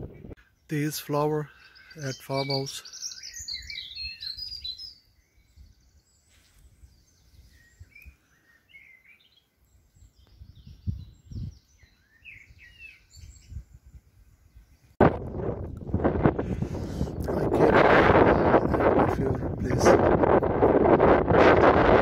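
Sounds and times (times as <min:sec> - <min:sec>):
wind rumble on microphone: 0:00.0 - 0:00.4, 0:03.4 - 0:06.0, 0:09.9 - 0:22.0
songbirds chirping and singing: 0:00.0 - 0:20.4.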